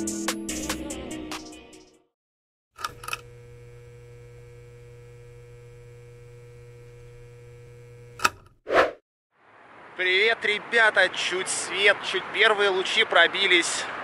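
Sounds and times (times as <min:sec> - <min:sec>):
electrical hum: 0:02.8 - 0:08.2.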